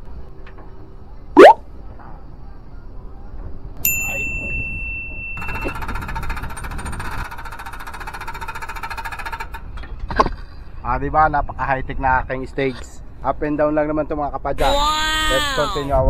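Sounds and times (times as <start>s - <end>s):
electronic beep: 1.4s - 1.6s.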